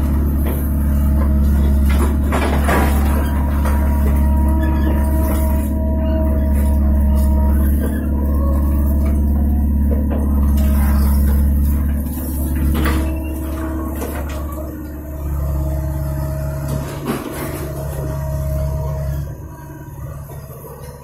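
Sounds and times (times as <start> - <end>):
diesel engine under load: 0.0 - 21.0
hydraulic tones: 0.0 - 21.0
rubble knocking and clattering: 0.3 - 5.8.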